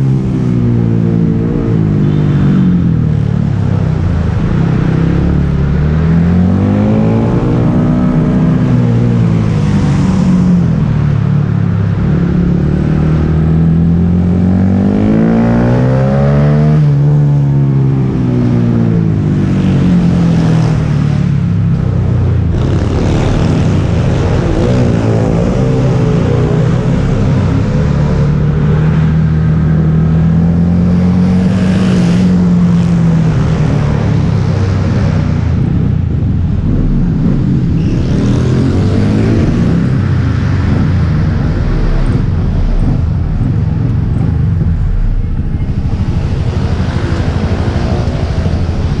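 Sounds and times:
motorcycle engine running: 21.3 - 49.0.

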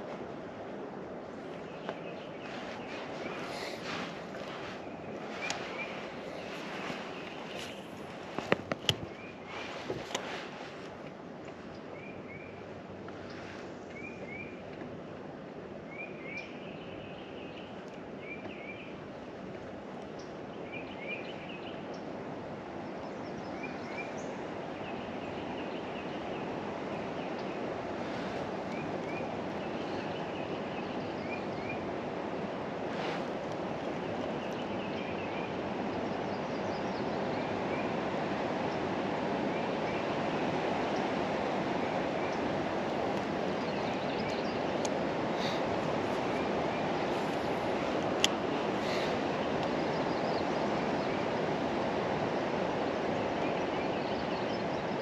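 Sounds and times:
choppy lake water: 0.0 - 55.0
wind rushing: 1.1 - 10.8
songbird chirping: 1.4 - 10.7, 39.5 - 52.6.

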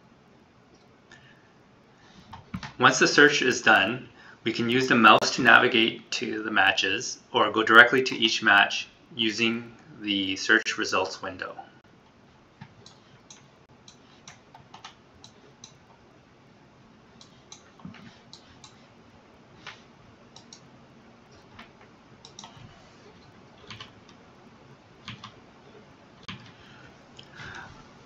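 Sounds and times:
computer mouse clicks: 12.6 - 15.9, 17.2 - 18.8, 19.6 - 20.7, 21.3 - 24.2, 25.0 - 25.4, 26.2 - 26.6.

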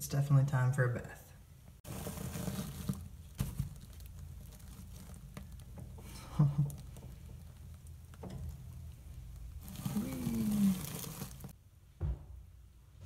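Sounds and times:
wood shavings rustling: 1.8 - 11.6.

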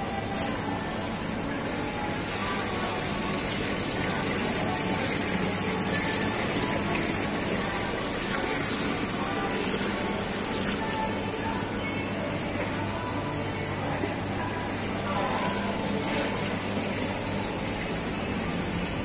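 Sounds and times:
water bubbling in fish tanks: 0.0 - 19.0.

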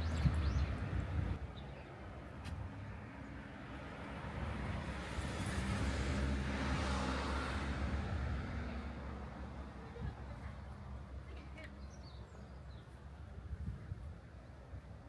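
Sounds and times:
car passing: 2.7 - 9.9.

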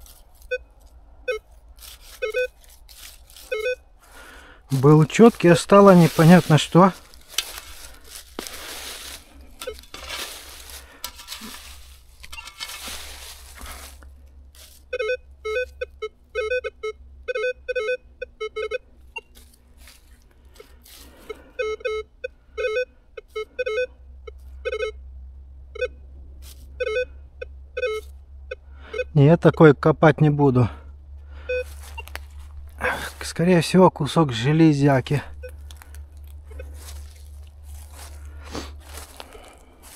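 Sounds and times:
rustling and scraping in leaves: 0.0 - 14.9, 19.3 - 21.2, 26.4 - 26.7, 31.6 - 33.4, 35.5 - 39.9
metal detector beeps: 0.4 - 2.7, 3.4 - 3.9, 4.7 - 8.4, 9.1 - 13.8, 14.8 - 19.5, 21.2 - 25.0, 26.8 - 27.1, 27.8 - 29.5, 31.4 - 32.3, 35.2 - 35.8, 36.4 - 37.0.

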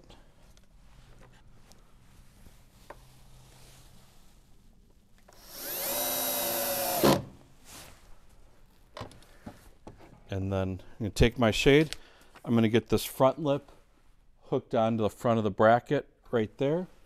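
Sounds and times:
cordless drill motor whine: 5.4 - 7.2
drill stopping clack: 5.4 - 7.2.

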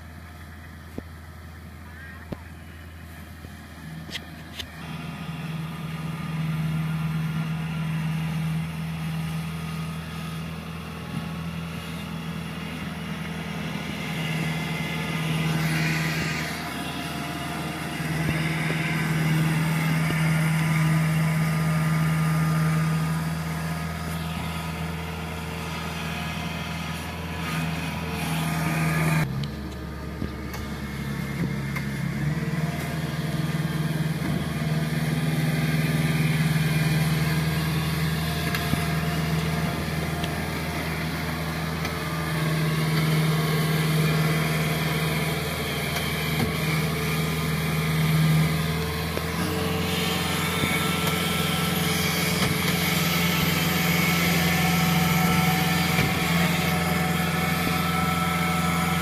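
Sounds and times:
combine harvester engine humming: 0.0 - 59.0.

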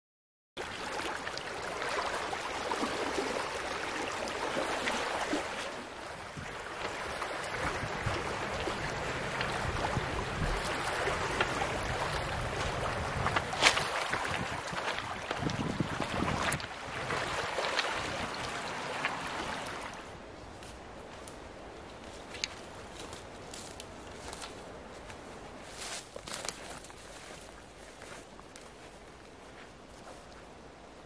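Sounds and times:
waves lapping on pebbles: 0.6 - 20.2
wind rumble on microphone: 6.0 - 19.7.

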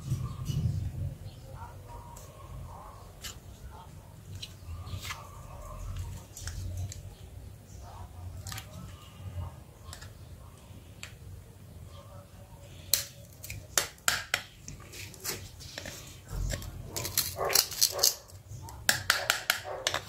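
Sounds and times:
plastic parts clicking and snapping: 12.9 - 20.0.

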